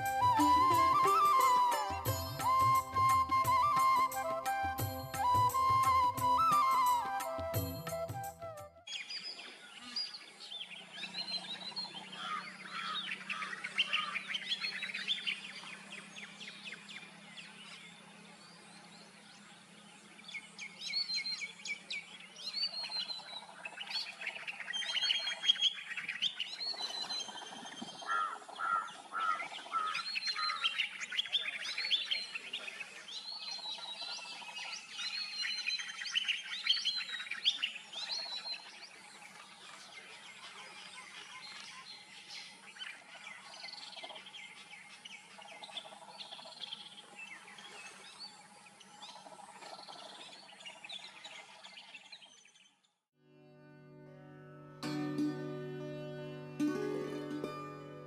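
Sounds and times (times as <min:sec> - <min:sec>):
many birds chirping: 0:08.9 - 0:52.8.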